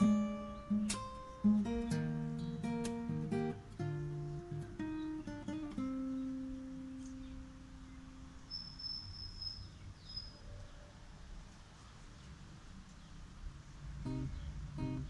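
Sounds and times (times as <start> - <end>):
acoustic guitar plucked notes: 0.0 - 8.3, 14.0 - 15.0.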